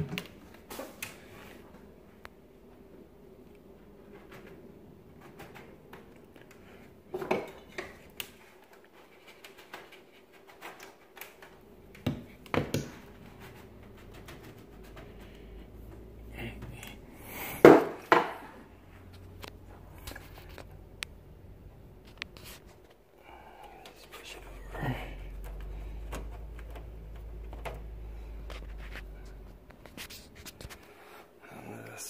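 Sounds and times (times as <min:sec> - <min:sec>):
hard objects clicking and knocking: 0:04.1 - 0:16.0, 0:17.5 - 0:18.6.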